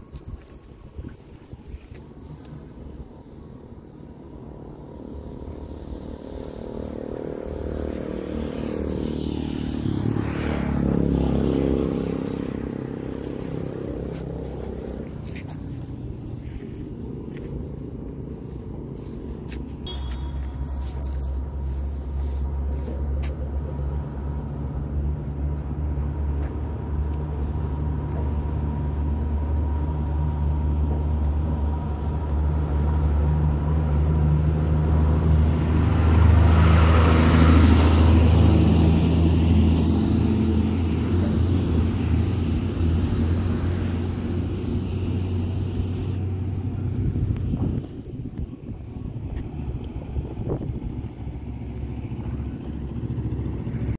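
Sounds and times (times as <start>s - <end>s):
vehicle engine rumbling: 0.0s - 53.9s.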